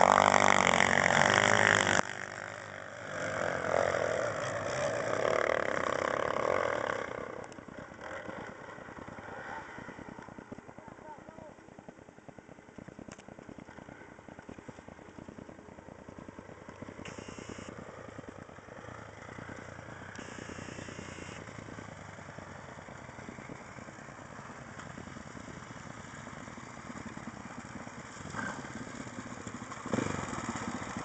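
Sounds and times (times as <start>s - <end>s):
dirt bike engines chugging: 0.0s - 31.0s.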